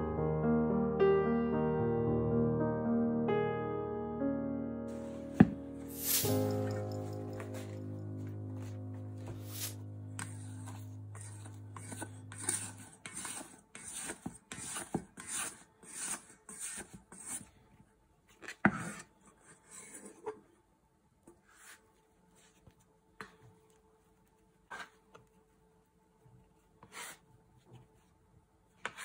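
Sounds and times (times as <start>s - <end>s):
rhythmic rasping scrapes: 9.5s - 17.3s.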